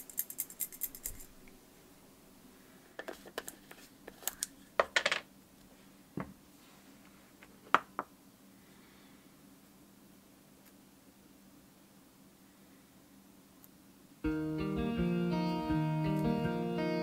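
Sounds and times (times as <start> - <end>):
small hard parts clicking: 0.0 - 1.3.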